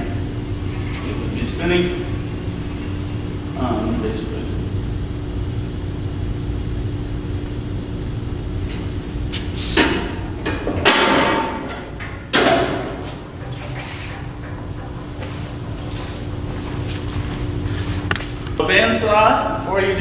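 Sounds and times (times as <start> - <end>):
steady low hum: 0.0 - 20.0
metal doors clanking shut: 9.7 - 16.9.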